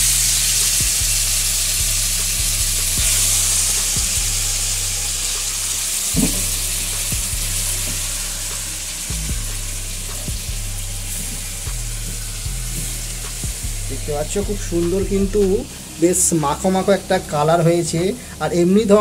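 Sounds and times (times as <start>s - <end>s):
food sizzling in hot oil: 0.0s - 18.4s
utensil knocking on pan: 6.2s - 6.5s.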